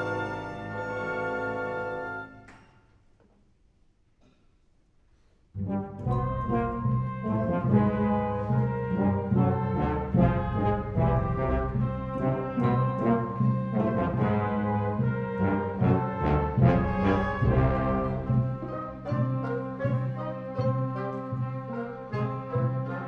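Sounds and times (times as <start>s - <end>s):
orchestral brass chords: 0.0s - 2.5s, 5.6s - 23.0s
timpani strokes: 5.5s - 23.0s.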